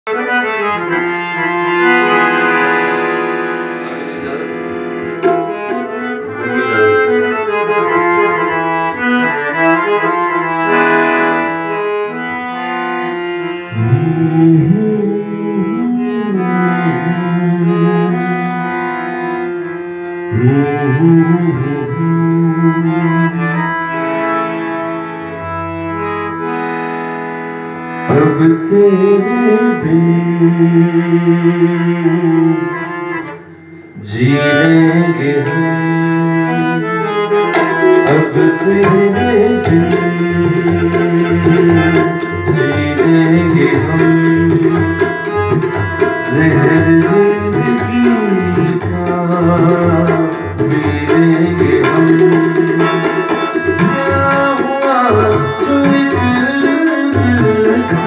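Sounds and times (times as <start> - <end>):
harmonium and keyboard melody: 0.0 - 58.0
tabla with bending bass drum: 4.3 - 8.6, 37.5 - 58.0.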